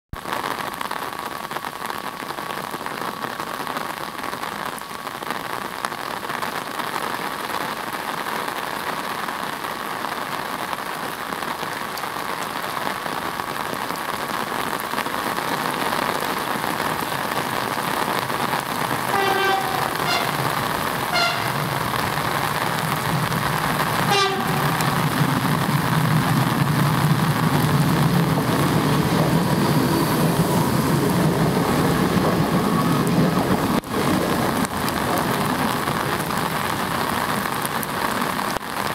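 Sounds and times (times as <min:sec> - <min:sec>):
rain falling on wet pavement: 0:00.1 - 0:38.9
train horn blast: 0:19.0 - 0:22.2, 0:24.0 - 0:25.2.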